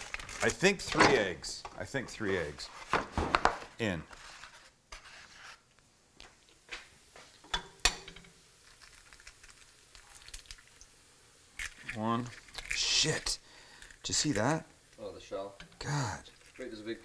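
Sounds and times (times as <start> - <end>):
egg cracking on skillet rim: 7.4 - 16.6.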